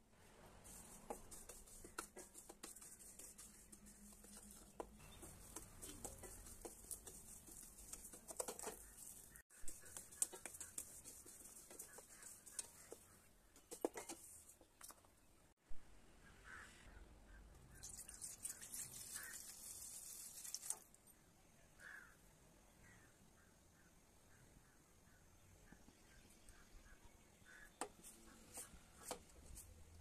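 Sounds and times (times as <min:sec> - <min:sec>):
wooden spatula scraping a pan: 0:00.7 - 0:14.6
grains clicking against metal: 0:02.6 - 0:15.0.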